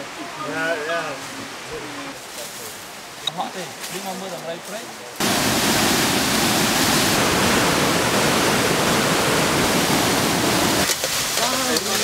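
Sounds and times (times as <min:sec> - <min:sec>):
water rushing over rocks: 0:05.2 - 0:12.0.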